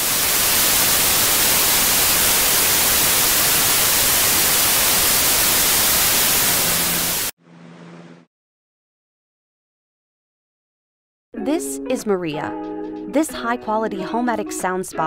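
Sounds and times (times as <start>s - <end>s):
white noise hiss: 0.0s - 7.3s.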